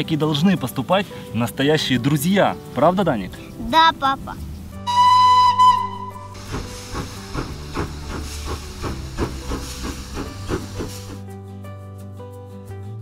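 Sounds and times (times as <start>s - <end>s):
background music: 0.0s - 13.0s
steam train whistle: 4.8s - 11.2s
rhythmic steam chuffing: 4.9s - 11.3s.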